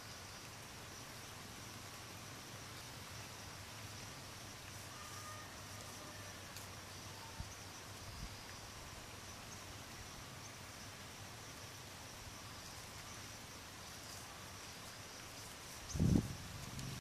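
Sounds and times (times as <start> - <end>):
low background hiss: 0.0 - 17.0
high-pitched insect drone: 3.2 - 10.9.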